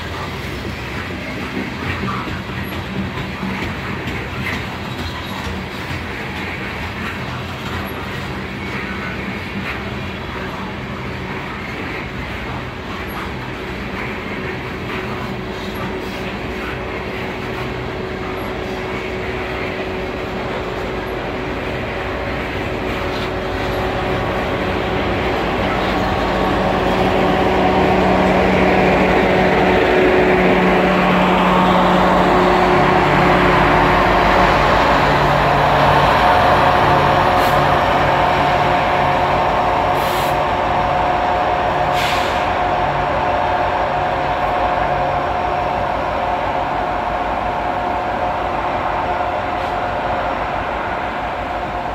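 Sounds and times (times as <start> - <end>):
diesel locomotive engine throb: 0.0 - 51.9
train wheels rumbling on rail: 0.0 - 51.9
steady whine: 11.3 - 51.9
short air hisses: 41.9 - 42.5.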